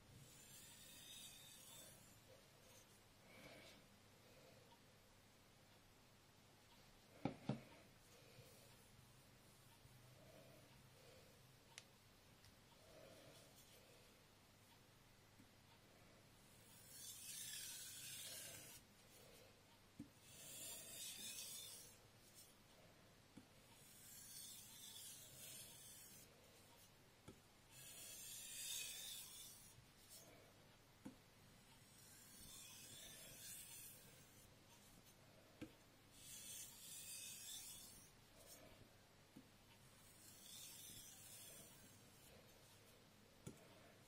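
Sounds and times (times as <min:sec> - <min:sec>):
blade rasping on whetstone: 0:00.2 - 0:02.2, 0:16.7 - 0:18.8, 0:20.2 - 0:22.0, 0:23.8 - 0:26.3, 0:27.7 - 0:30.2, 0:31.8 - 0:34.5, 0:36.1 - 0:38.6, 0:40.0 - 0:42.4.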